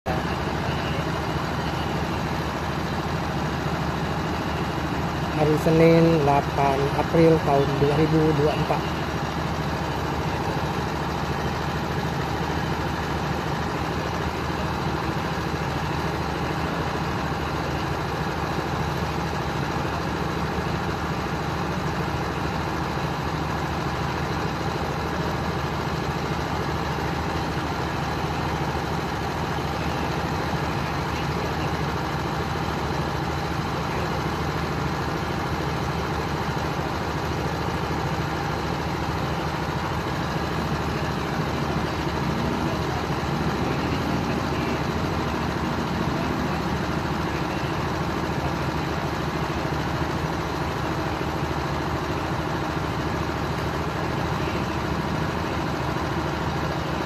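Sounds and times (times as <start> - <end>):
ship engine machinery droning: 0.1 - 57.0.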